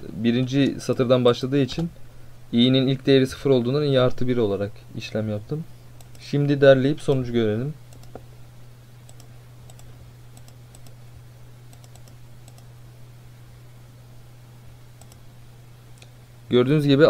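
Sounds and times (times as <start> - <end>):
computer mouse clicks: 6.0 - 6.2, 7.9 - 8.2, 9.1 - 11.0, 11.7 - 12.7, 15.0 - 15.3.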